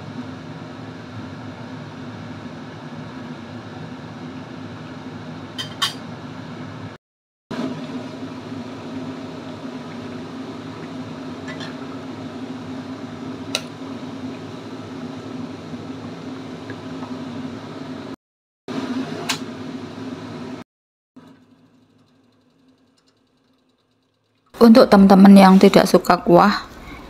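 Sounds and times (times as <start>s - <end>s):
broth simmering and bubbling: 7.6s - 17.3s, 21.2s - 24.6s.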